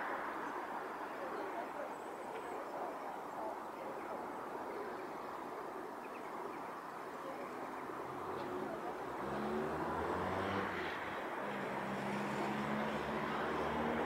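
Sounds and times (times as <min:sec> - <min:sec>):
city traffic noise: 0:00.0 - 0:14.0
vehicle engine hum: 0:07.4 - 0:14.0.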